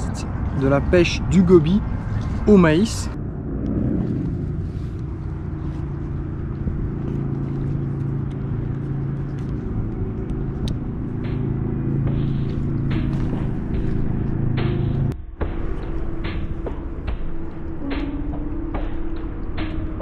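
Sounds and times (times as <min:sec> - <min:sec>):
low engine drone: 0:00.0 - 0:20.0.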